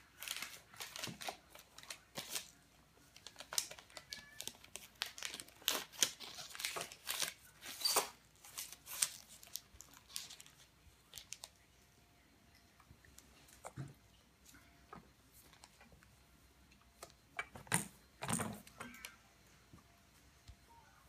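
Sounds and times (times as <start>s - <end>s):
paper crinkling and tearing: 0.0s - 11.6s.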